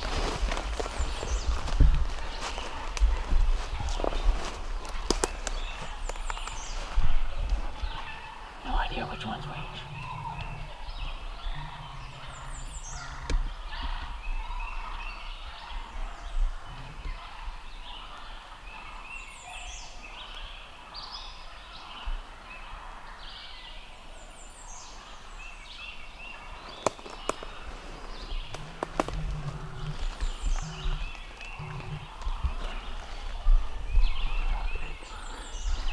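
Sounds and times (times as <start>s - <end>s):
turkeys purring and yelping: 0.7s - 15.0s, 26.4s - 35.9s.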